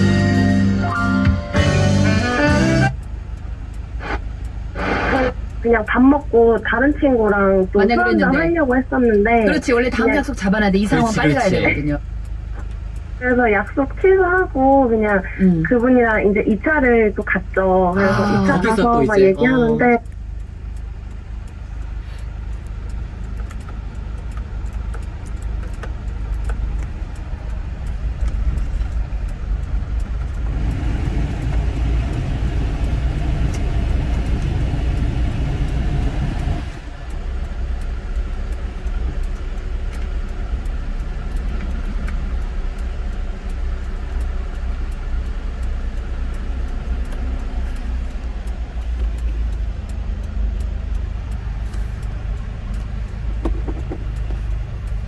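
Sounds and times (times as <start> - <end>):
diesel engine idling: 0.0 - 55.0
heater blower fan rushing air: 29.3 - 39.9.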